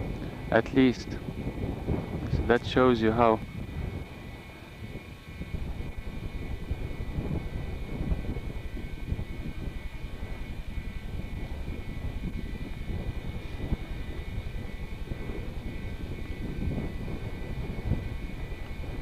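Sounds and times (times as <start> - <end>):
engine rumble: 0.0 - 19.0
wind noise: 0.0 - 19.0.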